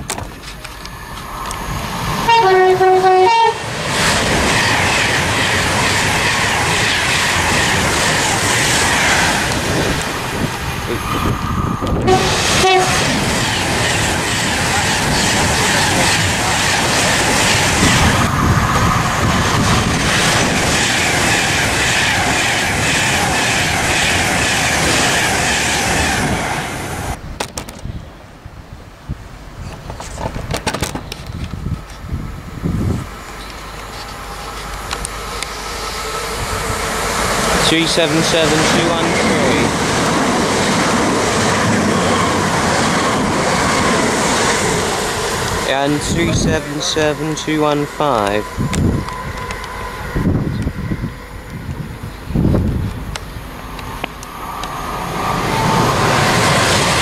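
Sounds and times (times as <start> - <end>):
train rushing through station: 0.0 - 57.0
train horn: 2.2 - 3.7, 12.0 - 13.1, 46.4 - 51.5.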